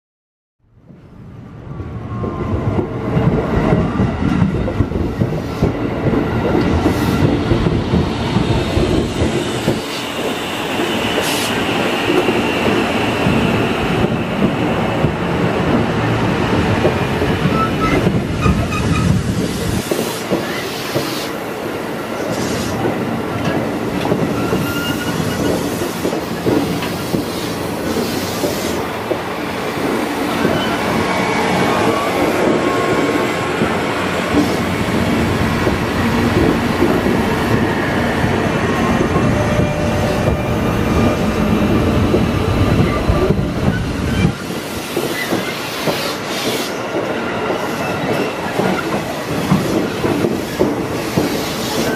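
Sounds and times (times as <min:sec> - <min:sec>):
train wheels rumbling on rail: 0:00.8 - 0:51.9
wheel squeals: 0:24.3 - 0:25.7.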